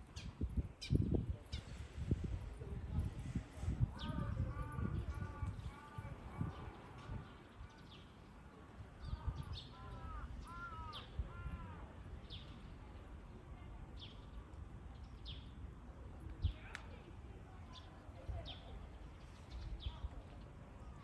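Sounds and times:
harsh caw-like bird calls: 0:09.1 - 0:11.9.

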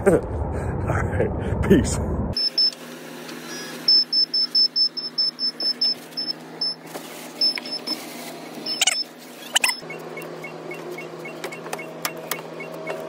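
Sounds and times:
steady low hum: 0:00.0 - 0:13.0
electronic warning beeper: 0:02.4 - 0:02.8, 0:03.5 - 0:06.8, 0:07.4 - 0:08.0, 0:08.7 - 0:13.0.

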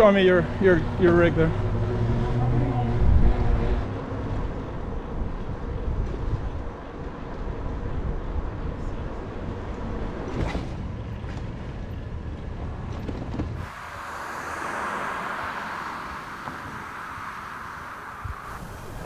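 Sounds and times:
low street rumble: 0:00.0 - 0:19.0
steady hiss: 0:13.6 - 0:19.0.

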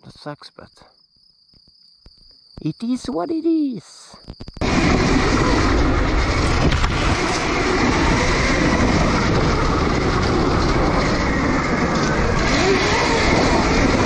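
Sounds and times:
tyres and wind rumble: 0:04.4 - 0:14.0.

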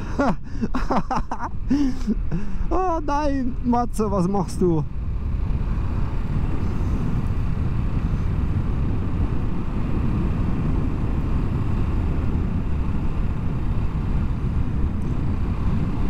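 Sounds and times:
wind noise on microphone: 0:01.5 - 0:16.0.

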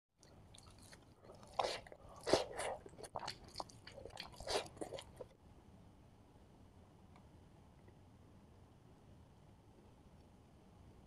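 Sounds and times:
crunchy eating sounds: 0:00.2 - 0:05.4.

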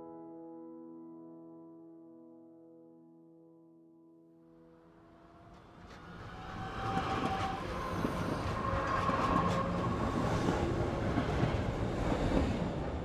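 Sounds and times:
clickety-clack over rail joints: 0:05.5 - 0:13.0
train wheels rumbling on rails: 0:05.5 - 0:13.0.

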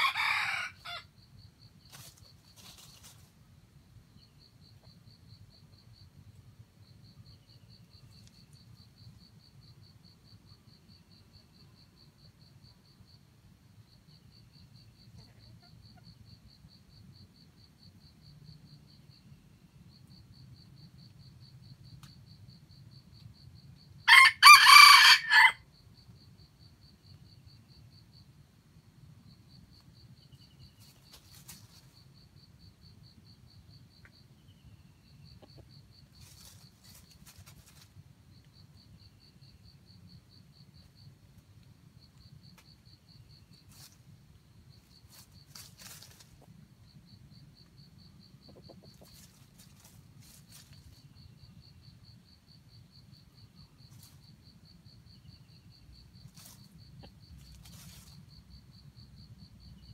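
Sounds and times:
rooster crowing: 0:00.0 - 0:01.1, 0:24.1 - 0:25.6
high pulsing insect trill: 0:29.2 - 0:59.9.

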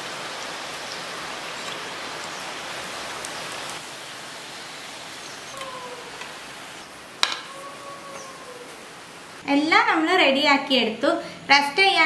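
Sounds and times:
oil sizzling: 0:00.0 - 0:09.4.

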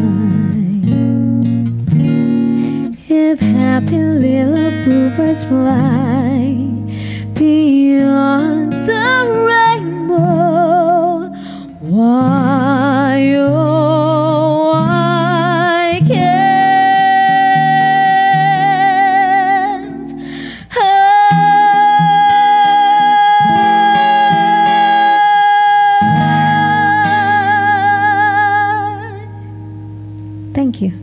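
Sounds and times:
woman singing with vibrato: 0:00.0 - 0:01.0, 0:02.9 - 0:29.7
strummed acoustic guitar: 0:00.0 - 0:30.4
singer breathing: 0:02.4 - 0:03.0, 0:06.8 - 0:07.4, 0:11.3 - 0:11.8, 0:20.1 - 0:20.8.

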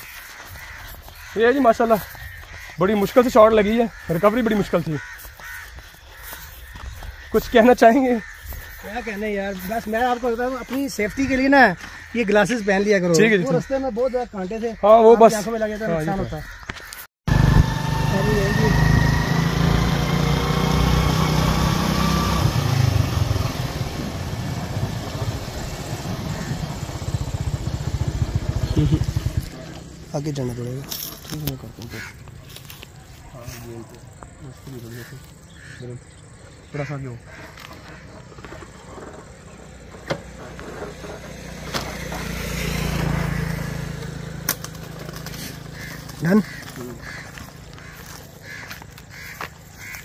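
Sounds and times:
small engine running: 0:17.3 - 0:31.5, 0:37.9 - 0:48.2.

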